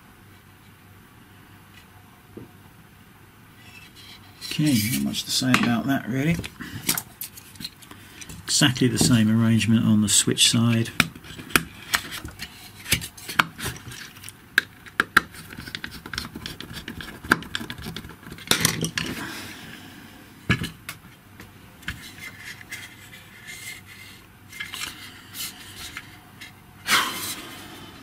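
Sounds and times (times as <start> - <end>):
plastic scrape: 3.6 - 8.4, 11.2 - 14.4, 21.9 - 27.5.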